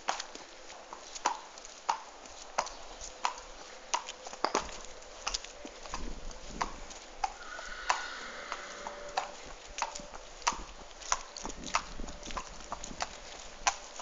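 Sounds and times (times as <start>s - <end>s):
horse hooves clip-clopping: 0.0s - 14.0s.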